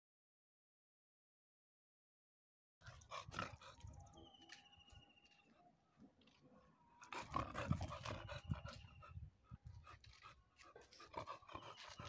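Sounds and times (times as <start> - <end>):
puppy panting: 2.8 - 5.6, 7.0 - 12.0.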